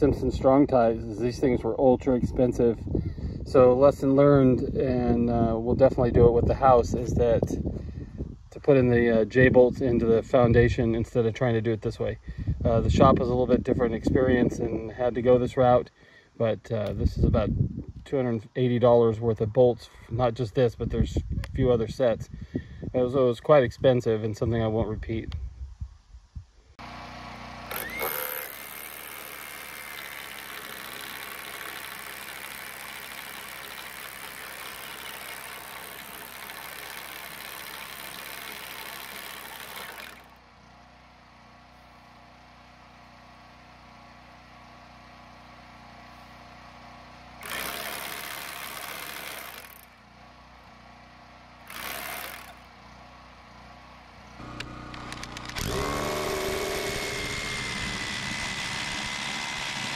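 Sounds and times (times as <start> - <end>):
drill motor whine: 26.8 - 40.4, 47.4 - 49.9, 51.6 - 52.7, 54.4 - 59.9
hammer drill boring: 27.6 - 40.4, 47.4 - 49.9, 51.6 - 52.6, 54.5 - 59.9.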